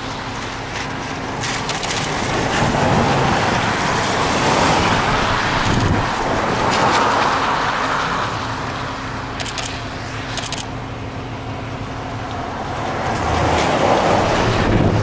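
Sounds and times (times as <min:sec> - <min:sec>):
passing road traffic: 0:00.0 - 0:15.0
wind rushing: 0:02.2 - 0:07.8, 0:12.9 - 0:15.0.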